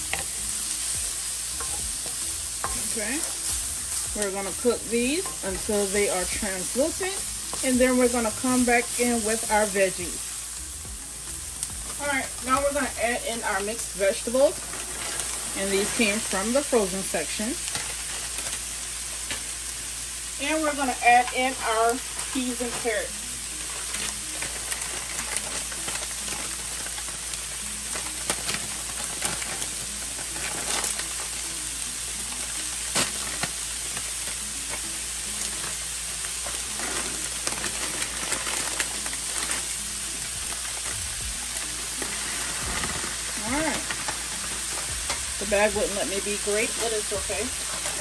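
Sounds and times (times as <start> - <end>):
vegetables sizzling in oil: 0.0 - 48.0.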